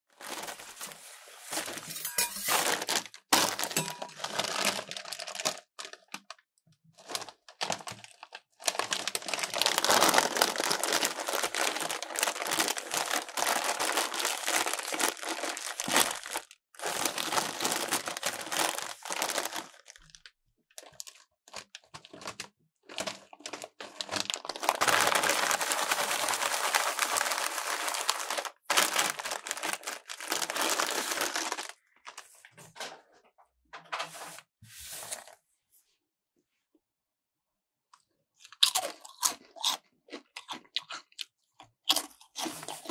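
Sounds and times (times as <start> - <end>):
chips and bag crunching: 0.2 - 6.2, 7.0 - 20.2, 20.8 - 31.8, 38.5 - 40.9, 41.9 - 42.9.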